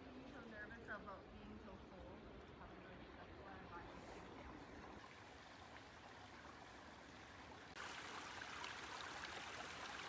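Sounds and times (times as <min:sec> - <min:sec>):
brook babbling over stones: 0:02.0 - 0:10.0.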